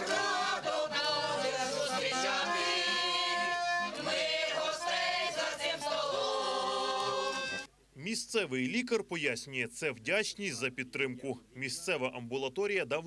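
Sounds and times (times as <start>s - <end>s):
button accordion: 0.0s - 7.7s
folk choir singing: 0.0s - 7.7s.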